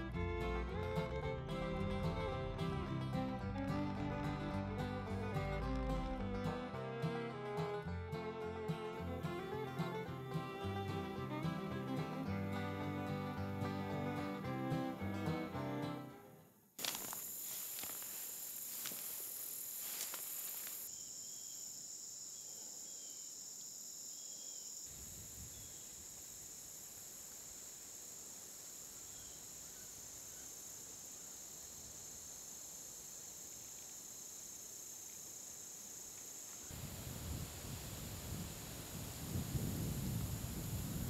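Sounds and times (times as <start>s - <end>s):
insect chorus: 8.6s - 13.3s, 16.4s - 41.0s.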